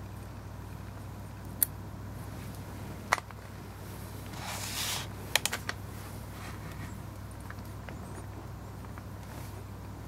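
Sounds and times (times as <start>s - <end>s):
steady low hum: 0.0s - 10.0s
soft rustling scrape: 3.8s - 5.2s, 5.9s - 7.0s, 9.2s - 9.6s.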